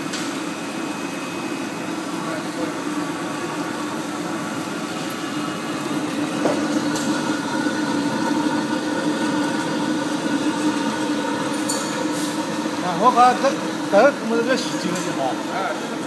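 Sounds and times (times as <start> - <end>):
machine hum: 0.0 - 16.0.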